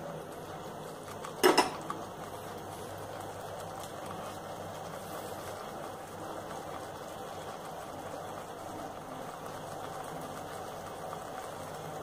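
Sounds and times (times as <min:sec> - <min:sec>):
gas burner hiss: 0:00.0 - 0:12.0.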